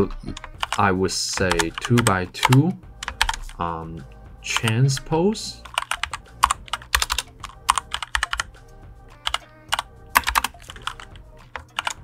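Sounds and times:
keyboard typing clicks: 1.4s - 3.6s, 5.6s - 8.5s, 9.2s - 12.0s.

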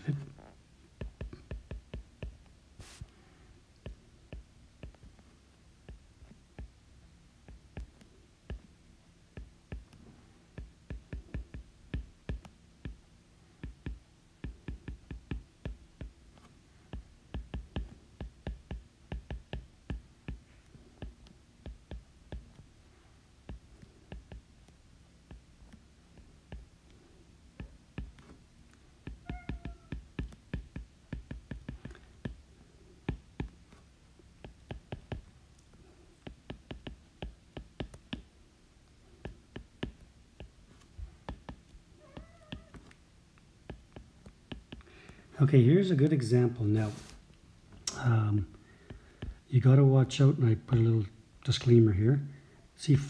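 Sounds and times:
stylus tapping on glass screen: 16.9s - 20.4s, 29.0s - 32.4s, 36.2s - 38.3s.

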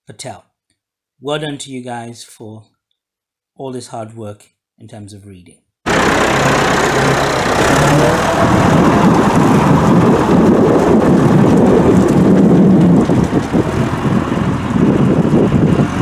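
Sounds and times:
tractor engine running: 5.9s - 16.0s.

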